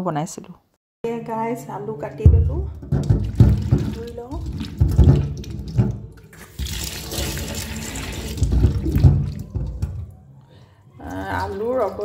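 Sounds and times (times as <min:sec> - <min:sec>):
tap water running: 0:02.2 - 0:10.2, 0:11.0 - 0:12.0
water sloshing in a bowl: 0:02.2 - 0:10.3, 0:11.0 - 0:12.0.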